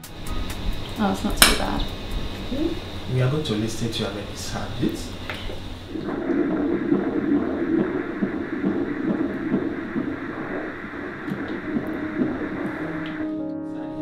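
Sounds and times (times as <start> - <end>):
fetal heartbeat on doppler: 5.9 - 13.3.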